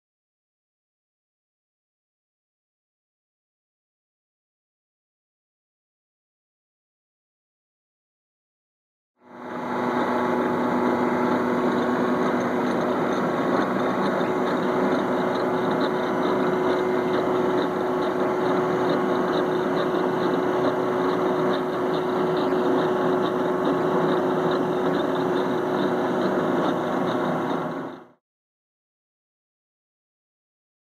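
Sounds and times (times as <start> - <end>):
machine humming with fast ticking: 9.2 - 28.2.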